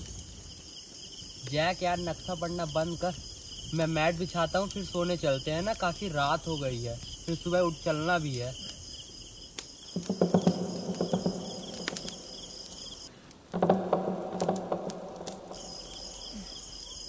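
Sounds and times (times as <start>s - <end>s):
crickets chirping: 0.0s - 17.0s
rustling and crackling: 0.0s - 17.0s.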